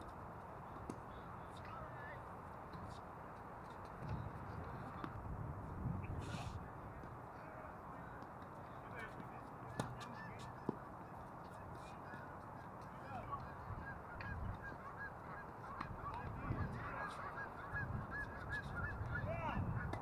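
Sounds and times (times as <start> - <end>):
low wind rumble: 4.1 - 7.0, 15.9 - 20.0
geese honking: 13.2 - 20.0.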